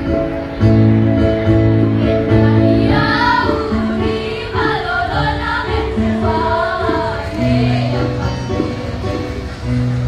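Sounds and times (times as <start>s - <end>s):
children's choir singing: 2.1s - 9.3s.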